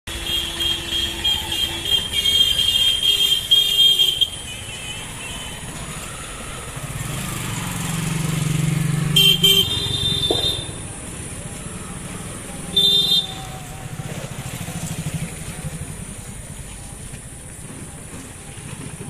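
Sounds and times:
high-pitched vehicle horn: 0.1s - 5.7s, 9.1s - 10.9s, 12.7s - 13.8s
horn beeps: 0.2s - 7.2s, 9.0s - 14.0s
motorcycle engine approaching: 5.3s - 19.0s.

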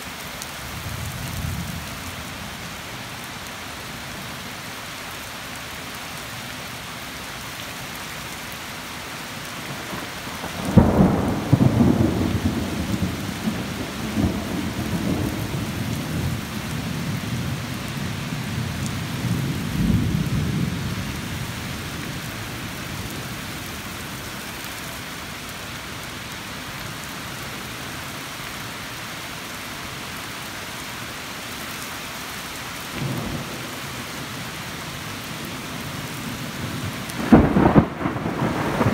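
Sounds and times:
steady rain: 0.0s - 38.9s
thunder crack and rumble: 9.8s - 17.6s, 36.7s - 38.9s.

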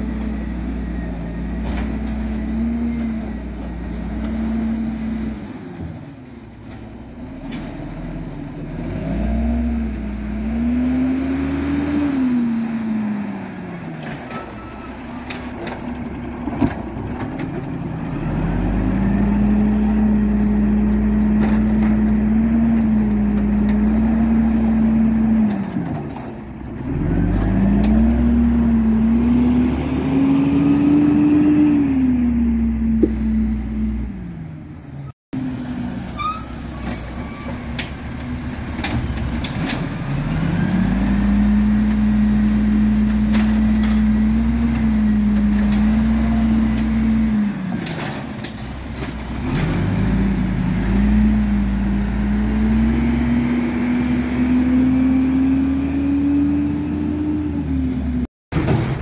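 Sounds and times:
diesel engine revving: 0.0s - 6.1s, 7.2s - 13.9s, 15.3s - 59.0s.

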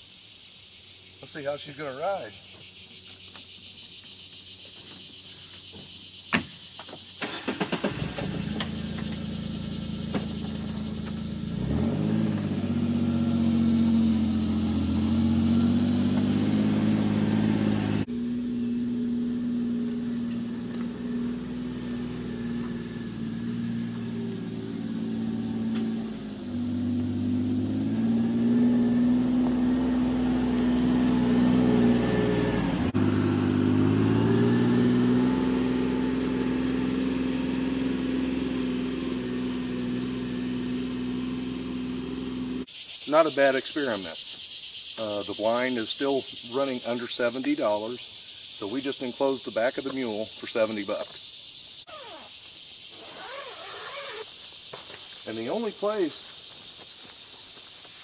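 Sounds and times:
engine starting and driving off: 6.9s - 42.7s.

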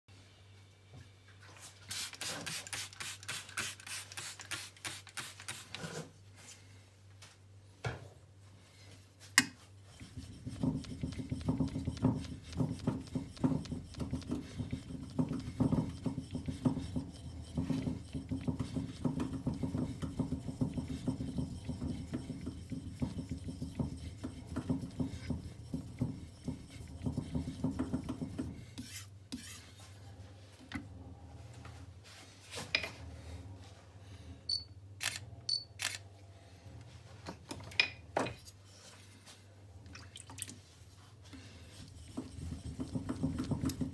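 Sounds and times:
strokes on a wet whetstone: 9.8s - 29.8s, 41.2s - 43.9s.

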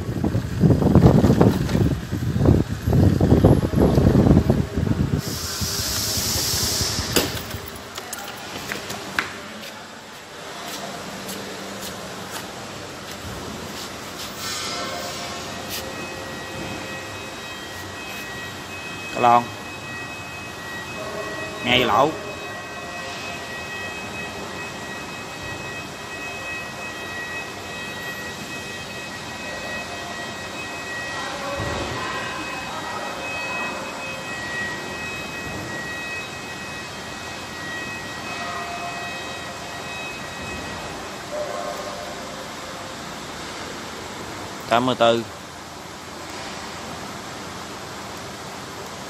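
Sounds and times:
steady background noise: 0.0s - 49.0s
rushing hiss: 5.2s - 7.4s
footsteps: 7.1s - 16.0s
faint high-pitched tones: 14.3s - 45.3s.

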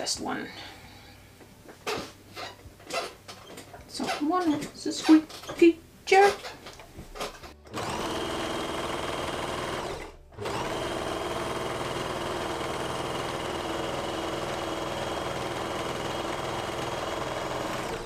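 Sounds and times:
overlocker sewing machine running: 7.7s - 18.0s.

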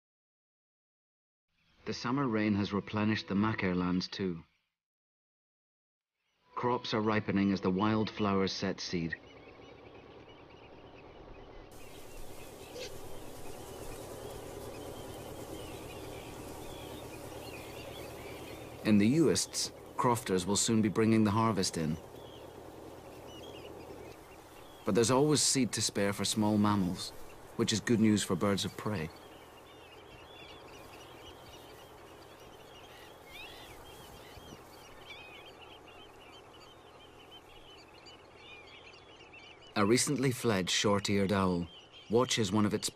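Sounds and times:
small birds chirping: 1.5s - 4.7s, 6.2s - 42.9s
steady background hiss: 8.9s - 40.8s.

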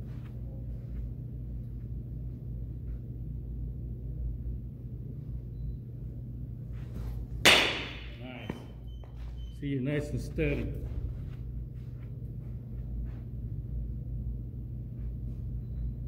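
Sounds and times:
steady low hum: 0.0s - 16.0s
metal bat striking ball: 7.4s - 8.2s.

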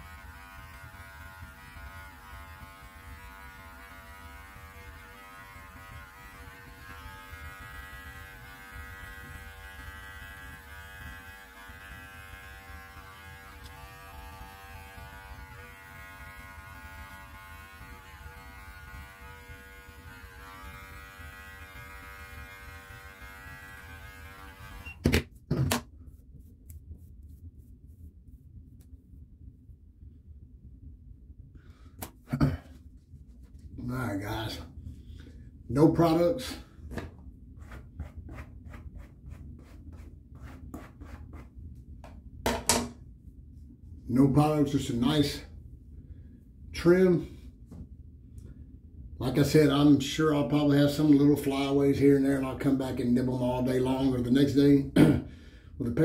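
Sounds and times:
electric clippers humming: 0.0s - 25.1s.

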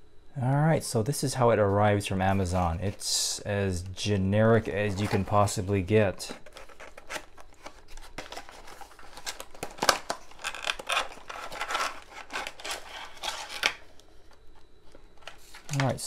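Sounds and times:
cardboard box being opened: 6.3s - 13.7s.

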